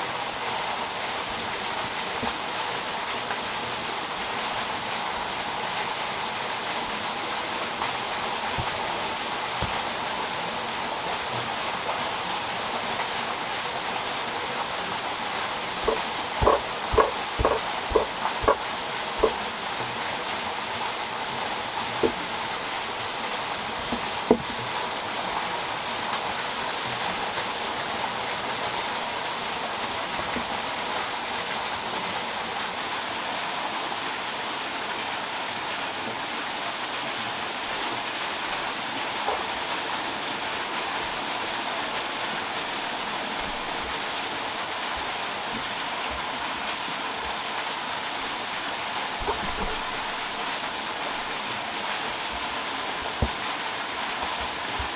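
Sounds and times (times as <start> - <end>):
flowing water: 0.0 - 54.9
short knocks: 15.8 - 18.6, 19.2 - 19.4, 22.0 - 22.2.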